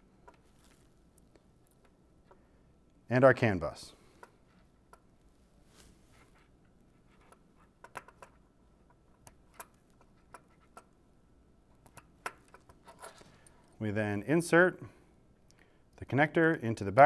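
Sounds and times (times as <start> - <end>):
light clicks and rustles of wires: 0.0 - 3.0, 11.7 - 13.8.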